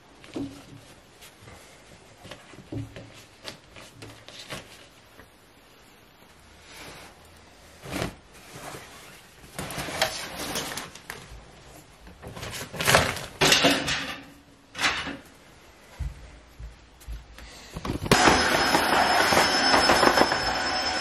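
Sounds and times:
fabric bags rustling and bumping: 7.7 - 13.5.

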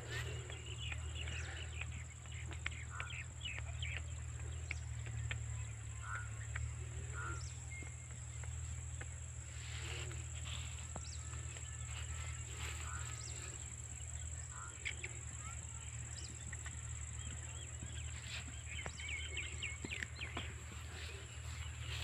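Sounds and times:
steady low hum: 0.0 - 22.0
high insect drone: 5.7 - 22.0.

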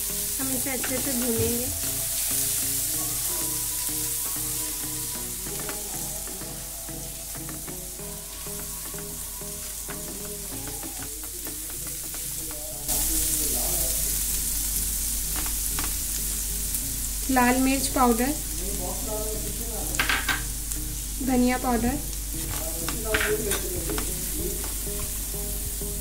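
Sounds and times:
background music: 0.0 - 26.0
oil sizzling in a pan: 0.0 - 26.0.

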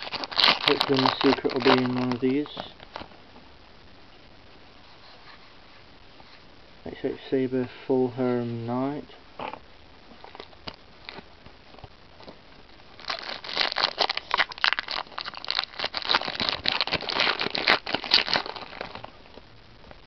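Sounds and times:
foil wrapper crinkling: 0.0 - 3.2, 10.2 - 12.4, 13.0 - 19.4.

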